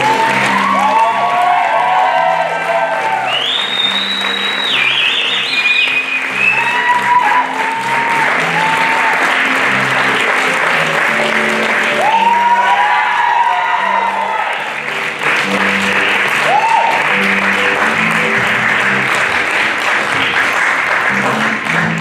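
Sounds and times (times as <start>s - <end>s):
whoops: 0.0s - 9.3s, 11.8s - 14.7s, 16.3s - 17.3s
audience applauding and cheering: 0.0s - 22.0s
curtain-call music: 0.0s - 22.0s
shrill whistle: 3.3s - 7.4s.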